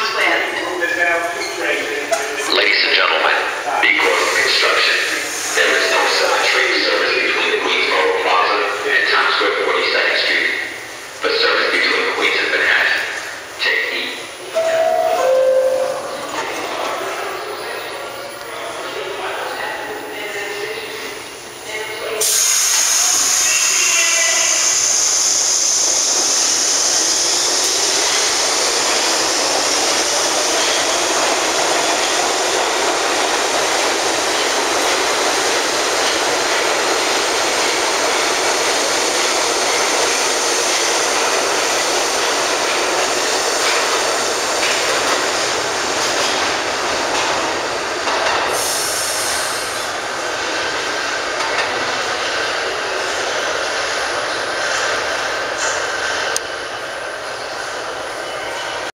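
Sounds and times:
train wheels clattering on rails: 26.8 - 49.1.

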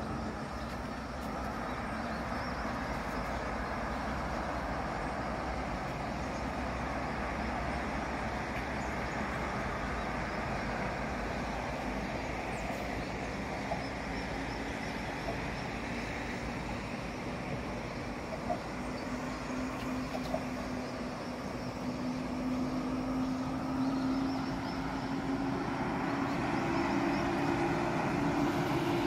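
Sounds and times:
distant traffic rumble and hiss: 0.0 - 29.0.

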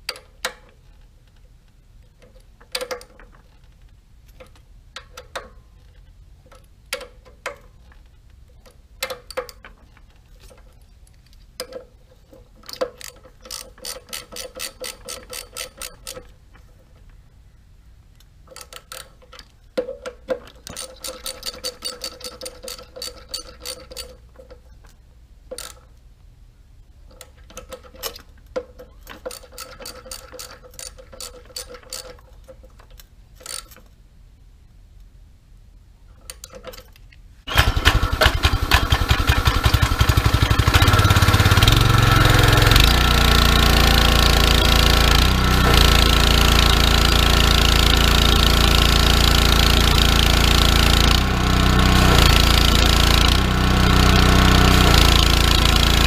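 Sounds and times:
ratchet wrench clicking: 12.6 - 16.3, 25.5 - 25.9, 29.2 - 32.2, 33.4 - 33.8.

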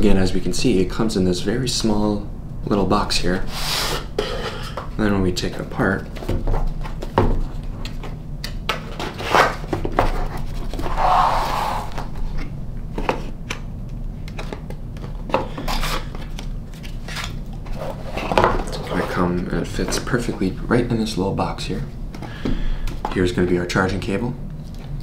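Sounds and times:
cardboard rubbing and scraping: 9.1 - 12.4.

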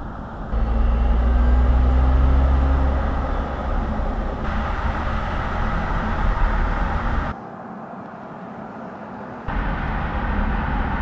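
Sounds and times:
strong low hum: 0.0 - 7.4, 9.5 - 11.0
tyres rumbling on asphalt: 0.0 - 11.0
wind rushing: 1.5 - 7.4.

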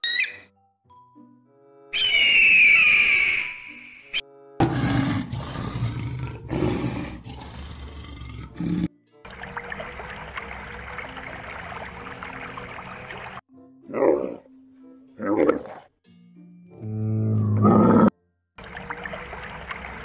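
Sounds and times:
eagle screaming: 1.9 - 4.0
lion roaring: 4.6 - 8.9.

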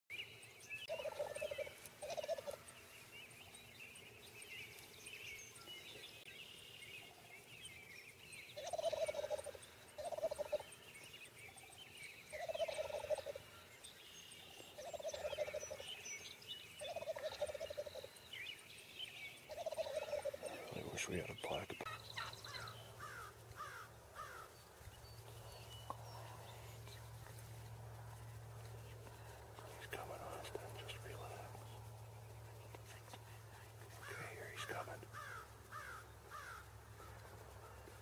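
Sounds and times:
small birds chirping: 0.1 - 38.0
turkeys gobbling: 0.9 - 2.6, 8.6 - 10.6, 12.4 - 13.4, 14.9 - 15.8, 16.9 - 18.0, 19.5 - 20.8.

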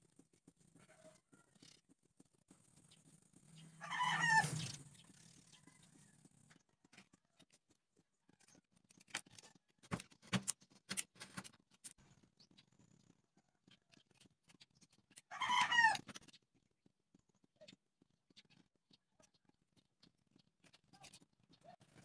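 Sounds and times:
wooden sticks clicking and knocking: 6.5 - 12.8.

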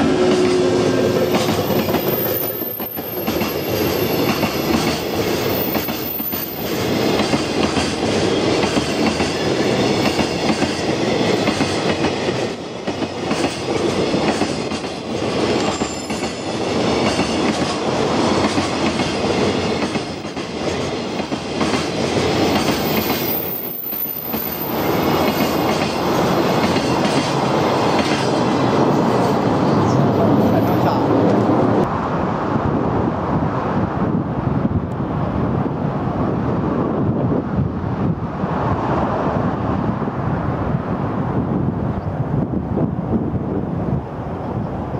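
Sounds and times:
steel wheels clattering on rails: 0.0 - 31.5
freight train passing: 0.0 - 44.9.

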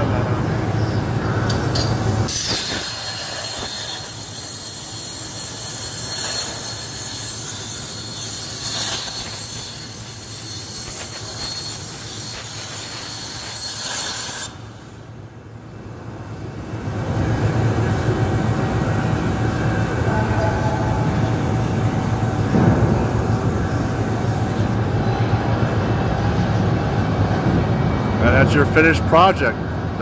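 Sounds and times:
plasma torch hissing: 1.5 - 15.1, 20.7 - 24.8.

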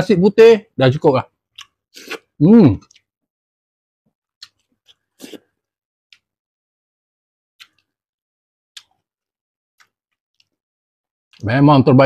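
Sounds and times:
lip smacks and clicks: 1.5 - 3.1, 4.4 - 5.1, 6.1 - 6.3, 7.6 - 8.0, 8.7 - 9.1, 9.8 - 10.6.

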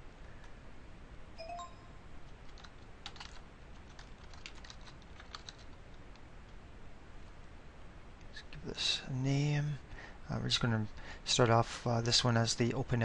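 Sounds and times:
brief tone: 1.4 - 2.1
computer keyboard typing: 1.5 - 6.2.

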